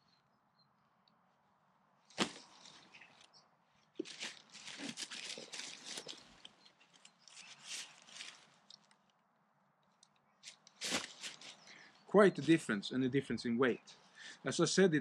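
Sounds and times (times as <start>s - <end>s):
nylon fabric rustling: 2.1s - 3.2s, 4.0s - 8.7s, 10.4s - 11.7s
bag set down knock: 2.2s - 2.5s.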